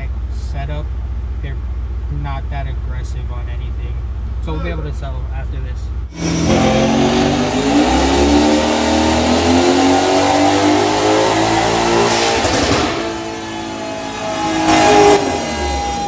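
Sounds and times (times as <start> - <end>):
engine at full throttle: 6.1 - 16.0.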